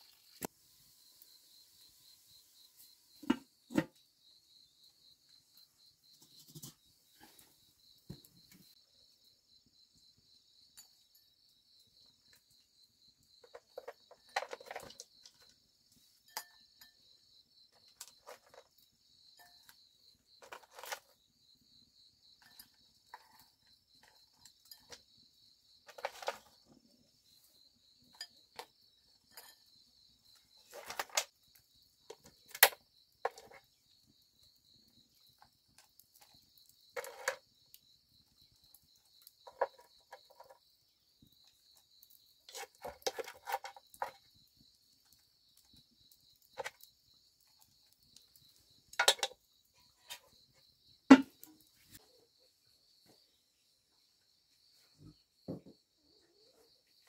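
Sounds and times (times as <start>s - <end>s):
insects chirring: 0.0s - 57.0s
knocks and clatters: 51.1s - 51.4s.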